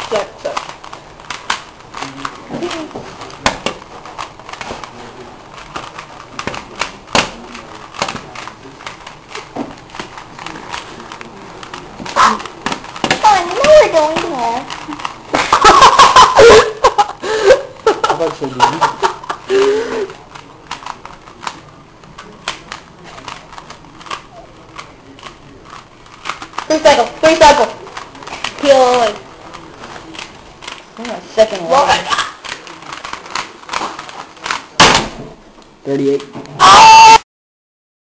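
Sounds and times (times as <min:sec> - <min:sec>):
plastic puzzle cube clicking: 0:20.3 - 0:29.2.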